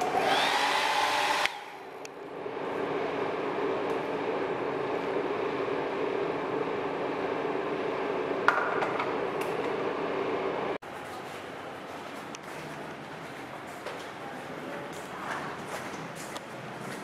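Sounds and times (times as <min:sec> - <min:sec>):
hair dryer blowing: 0:00.0 - 0:02.0.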